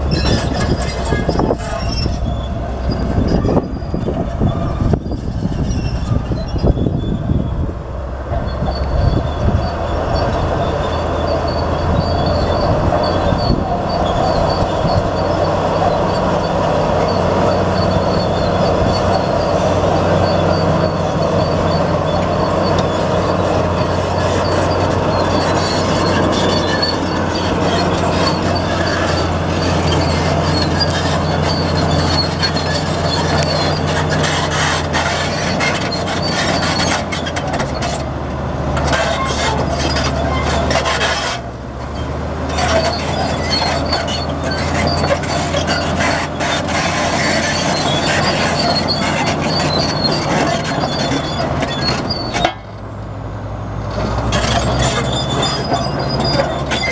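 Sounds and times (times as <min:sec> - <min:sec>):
steel tracks clattering and squealing: 0:00.0 - 0:52.9, 0:53.9 - 0:56.9
bulldozer diesel engine running: 0:00.0 - 0:56.9
rock scraping: 0:09.2 - 0:38.1, 0:38.7 - 0:41.5, 0:42.5 - 0:52.5.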